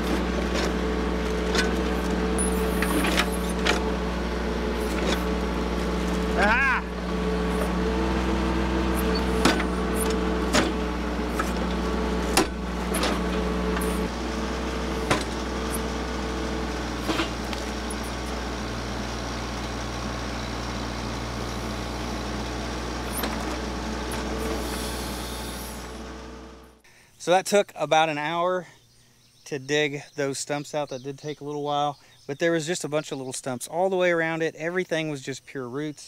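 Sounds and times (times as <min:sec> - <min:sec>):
tractor diesel engine running: 0:00.0 - 0:26.8.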